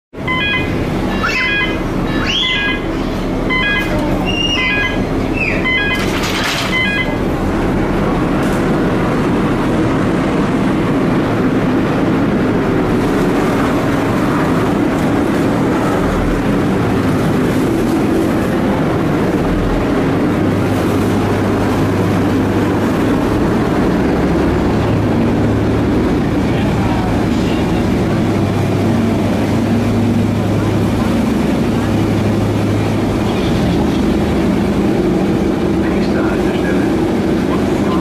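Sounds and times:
diesel engine rumbling: 0.1s - 38.0s
short beeps: 0.2s - 7.3s.

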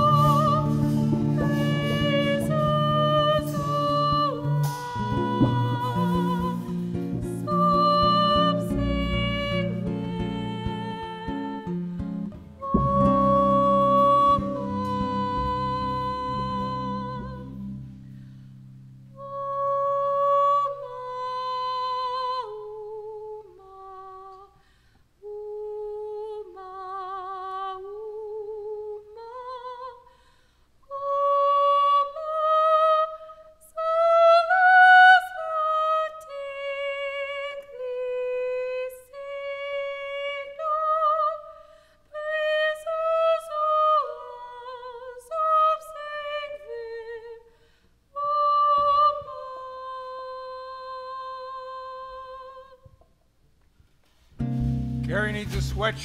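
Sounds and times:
high voice singing wordlessly: 0.0s - 11.8s, 12.5s - 17.8s.

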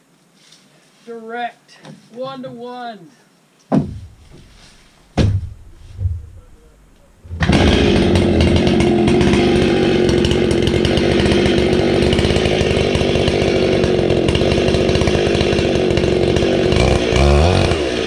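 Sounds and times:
chainsaw running: 7.2s - 18.0s.

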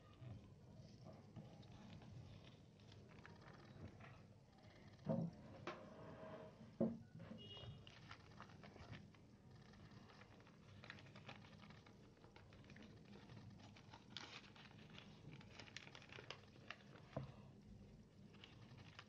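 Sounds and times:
paper being folded and creased: 1.4s - 4.3s, 7.8s - 19.0s.

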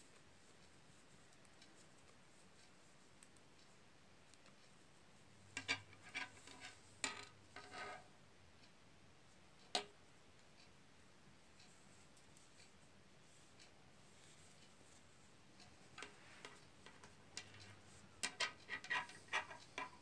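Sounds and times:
knitting needles clicking: 0.1s - 4.8s, 15.6s - 20.0s.

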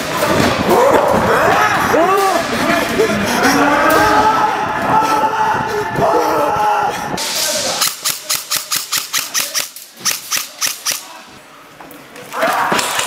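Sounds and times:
voices shouting: 0.1s - 7.2s
airsoft gun rapid shots: 7.8s - 11.1s.

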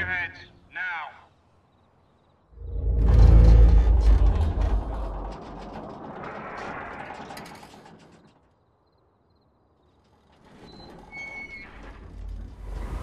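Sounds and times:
metal creaking and clicking: 2.6s - 8.7s.

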